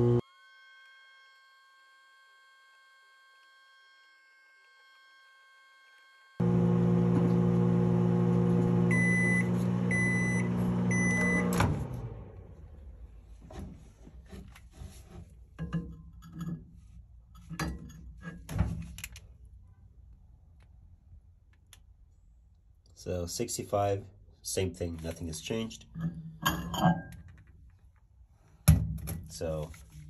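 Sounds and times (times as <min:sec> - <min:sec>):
microwave oven humming: 0:00.0 - 0:00.2, 0:06.4 - 0:12.8
microwave beeps: 0:08.7 - 0:11.8.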